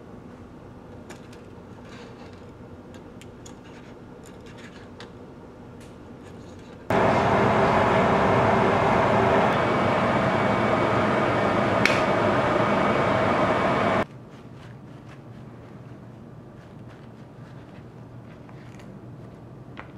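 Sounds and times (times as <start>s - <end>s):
faint hum: 0.0s - 14.1s.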